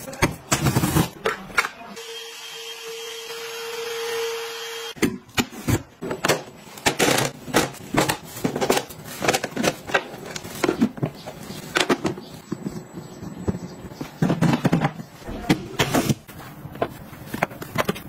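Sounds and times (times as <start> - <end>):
plastic boxes clacking: 5.2 - 18.0.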